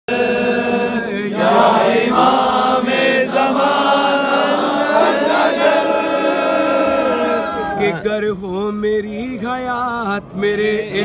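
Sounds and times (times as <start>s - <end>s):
men chanting together: 0.1s - 8.2s.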